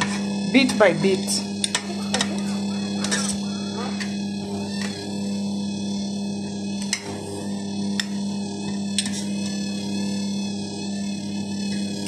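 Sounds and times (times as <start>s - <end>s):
stand mixer motor humming: 0.0s - 12.0s.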